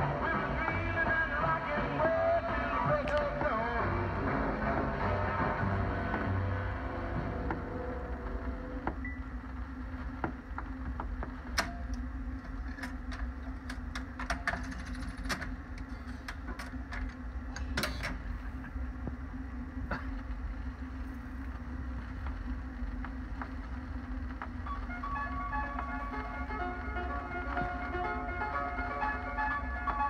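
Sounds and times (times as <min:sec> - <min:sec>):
record changer clicks and clunks: 0:10.0 - 0:19.2.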